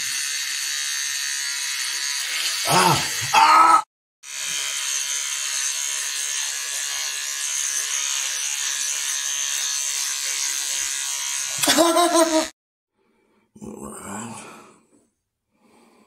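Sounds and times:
electric shaver buzzing: 0.0s - 3.4s, 4.2s - 12.6s
short vocal cry: 2.6s - 3.9s.

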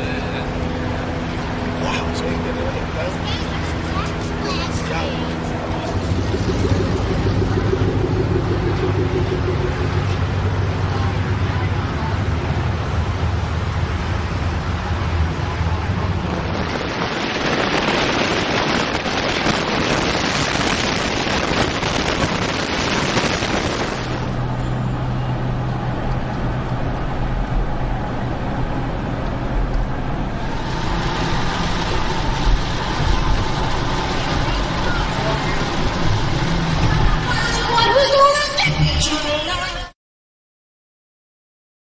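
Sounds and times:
low engine hum: 0.0s - 39.9s
road noise of passing cars: 0.0s - 39.9s.

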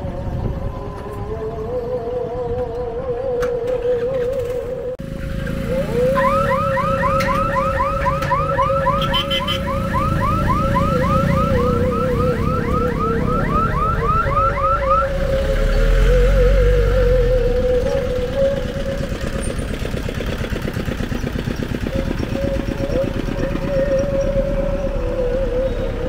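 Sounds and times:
traffic rumble: 0.0s - 26.0s
wavering alarm tone: 5.7s - 15.2s.

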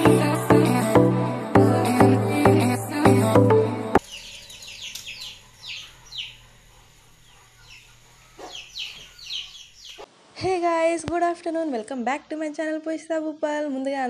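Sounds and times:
electronic intro music: 0.0s - 4.0s
small birds chirping: 4.0s - 10.1s.

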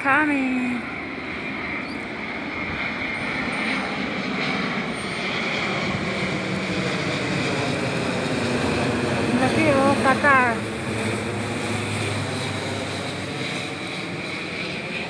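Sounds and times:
jet airliner flying overhead: 0.0s - 15.0s.

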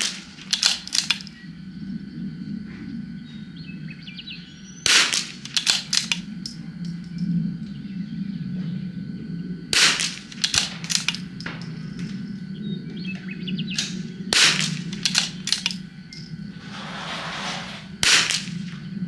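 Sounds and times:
rifle shots: 0.0s - 1.2s, 4.8s - 6.2s, 9.7s - 11.2s, 13.8s - 15.8s, 18.0s - 18.6s.

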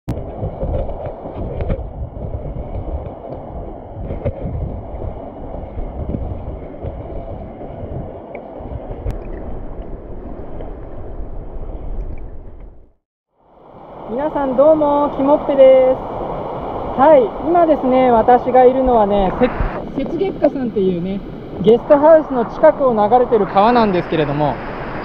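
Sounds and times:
stream water rushing: 13.4s - 25.0s.

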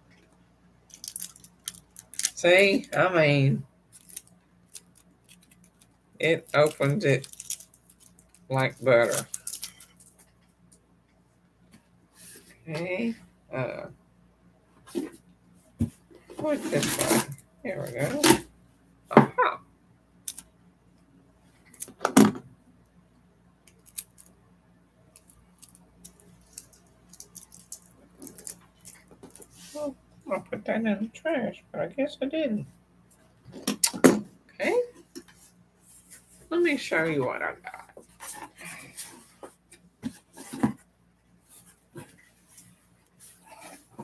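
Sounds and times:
packaging being handled: 6.5s - 10.2s
paper and cardboard rustling: 16.3s - 18.4s, 38.1s - 40.8s.

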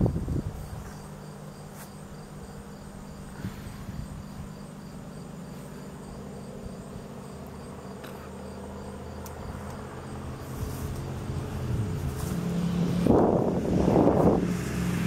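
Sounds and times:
faint ticks: 9.2s - 9.8s.

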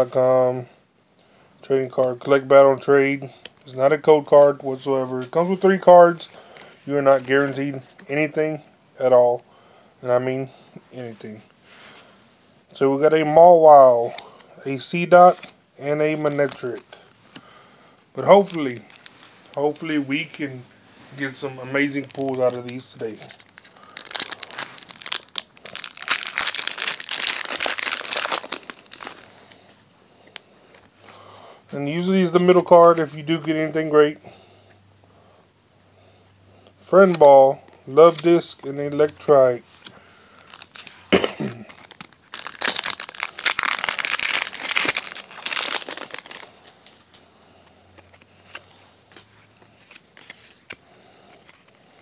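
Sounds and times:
cards rustling: 5.1s - 8.2s, 14.0s - 17.5s, 18.2s - 31.2s, 38.0s - 47.2s, 47.9s - 52.0s
foil wrapper crinkling and tearing: 18.3s - 19.8s, 21.6s - 29.6s, 40.3s - 47.0s.

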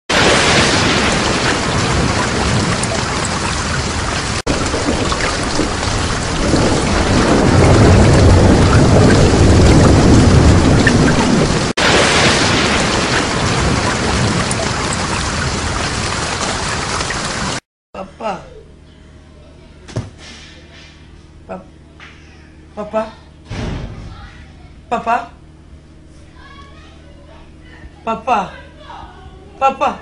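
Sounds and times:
heavy rain: 0.1s - 17.6s
thunder rolling: 0.1s - 17.6s.

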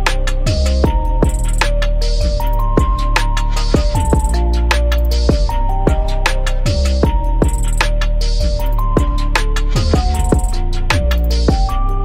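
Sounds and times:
electronic music with steady beat: 0.0s - 12.0s.

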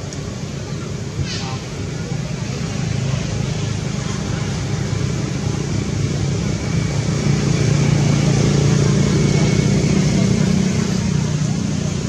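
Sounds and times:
low engine-like drone: 0.0s - 12.0s
hiss: 1.1s - 3.4s.

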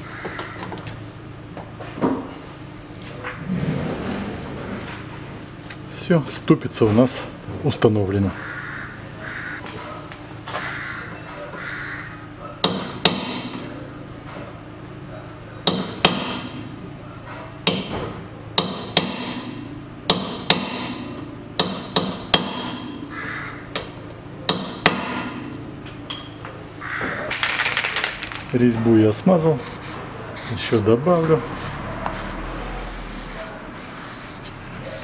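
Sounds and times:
hammer striking metal punch: 12.6s - 13.6s, 15.6s - 16.6s, 17.6s - 23.1s, 24.5s - 26.4s.

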